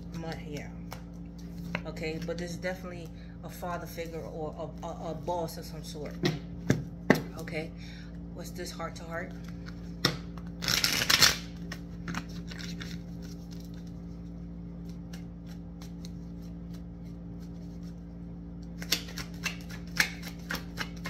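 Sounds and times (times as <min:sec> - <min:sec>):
cards riffle shuffled: 0:09.4 - 0:18.0, 0:18.8 - 0:21.0.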